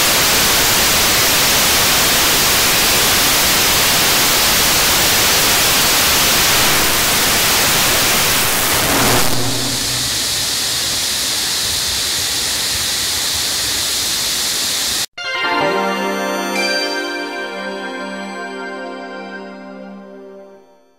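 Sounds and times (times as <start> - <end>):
rocket engine roaring: 5.7 - 12.2
background music: 15.2 - 20.9.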